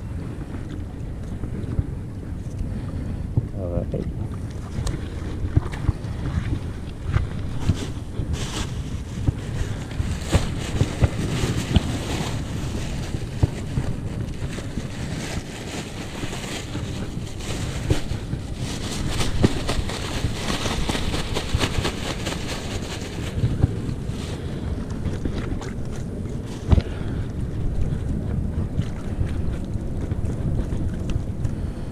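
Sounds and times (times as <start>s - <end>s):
wind buffeting microphone: 0.0s - 31.9s
sea washing on rocks: 0.2s - 31.9s
plastic bag and net rustling: 7.5s - 24.6s.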